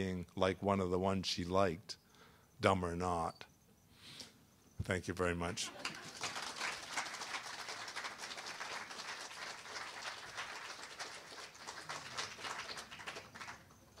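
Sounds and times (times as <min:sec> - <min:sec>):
audience applauding: 0:05.7 - 0:14.0.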